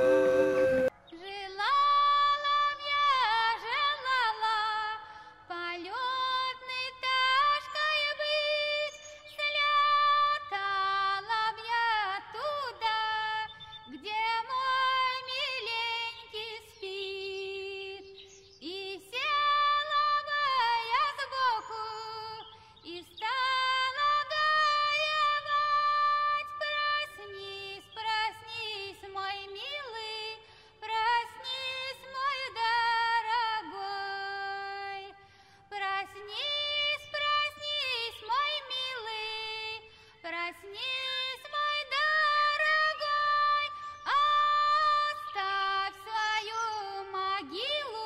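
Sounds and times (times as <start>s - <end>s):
music with high singing voice: 0.0s - 1.8s.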